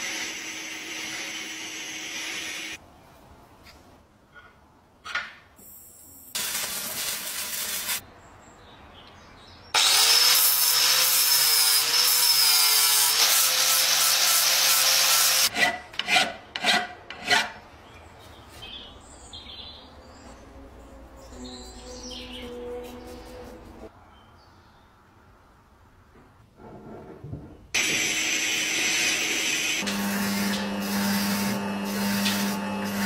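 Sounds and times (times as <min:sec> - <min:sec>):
angle grinder grinding metal: 0:27.8 - 0:33.0.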